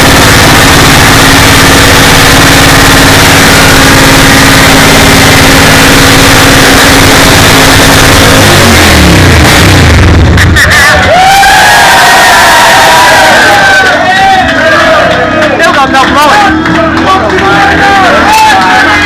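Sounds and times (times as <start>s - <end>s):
motorcycle engine revving: 0.0s - 10.8s.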